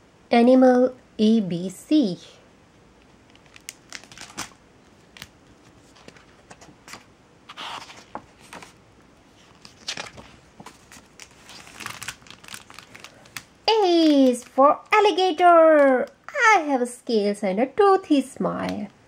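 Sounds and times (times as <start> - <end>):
book pages turning: 3.0 - 14.6.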